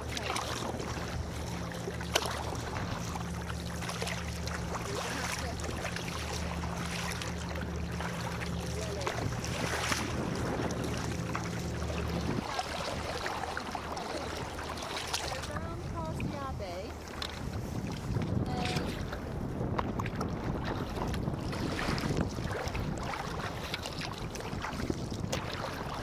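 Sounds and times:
low steady hum: 0.0 - 26.0
paddle strokes splashing: 0.0 - 26.0
water lapping against hull: 0.0 - 26.0.

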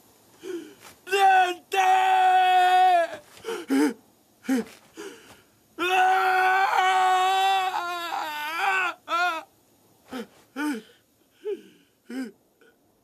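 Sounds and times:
young man sobbing and wailing: 0.4 - 9.5.

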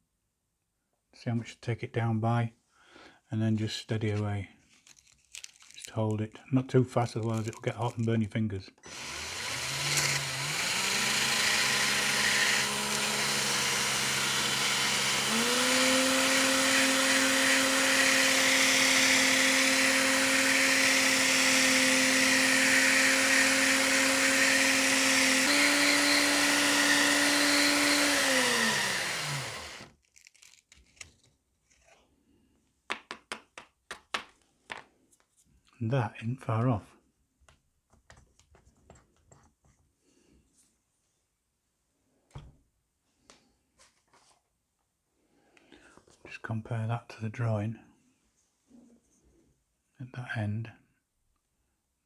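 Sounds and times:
drill motor whine: 8.8 - 29.9.

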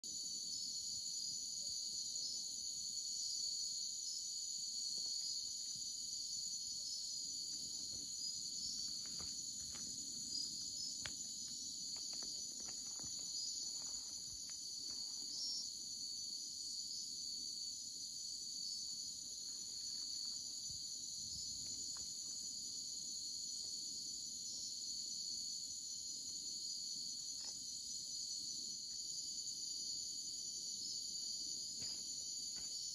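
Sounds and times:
crickets trilling: 0.0 - 32.9
faint clicks and rustles: 7.5 - 15.0.

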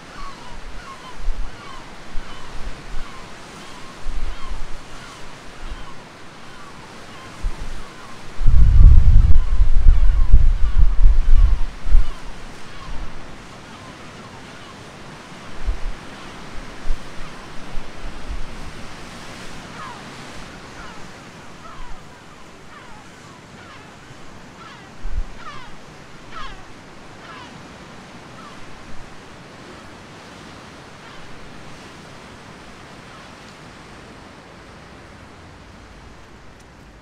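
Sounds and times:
sea waves rushing: 0.0 - 37.0
wind buffeting microphone: 7.3 - 13.4, 15.5 - 20.4.

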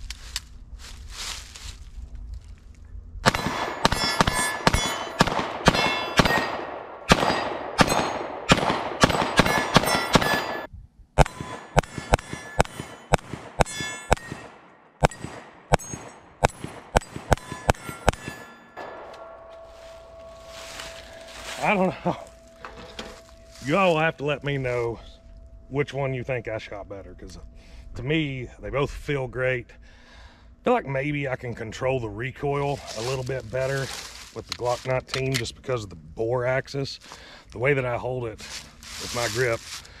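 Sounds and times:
pistol shots: 3.2 - 19.4
steel plate ringing: 3.3 - 6.6, 7.2 - 8.3, 9.3 - 26.6.

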